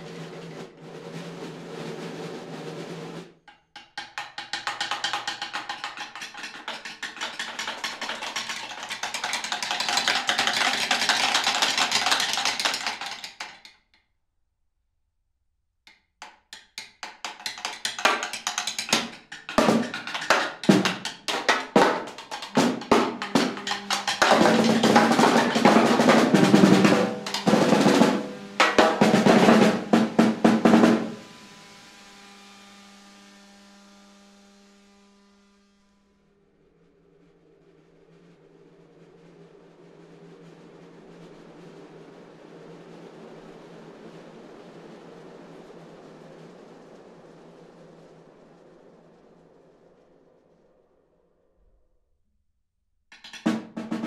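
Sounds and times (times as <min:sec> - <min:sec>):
snare drum rolls: 0:00.0 - 0:13.7, 0:16.8 - 0:31.3, 0:53.1 - 0:54.0.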